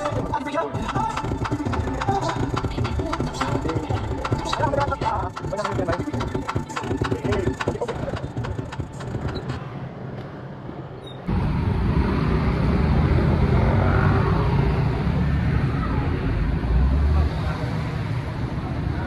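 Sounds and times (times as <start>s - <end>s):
rapid clicking: 0.0s - 9.7s
motor scooters passing: 1.0s - 19.0s
heavy low rumble: 11.3s - 17.6s
traffic on wet road: 11.3s - 19.0s.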